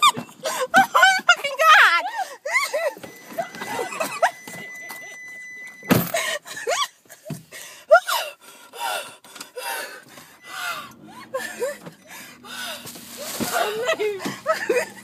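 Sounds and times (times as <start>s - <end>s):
woman gasping and squealing: 0.4s - 0.9s, 2.0s - 3.1s, 6.1s - 15.0s
heavy breathing: 7.5s - 13.3s.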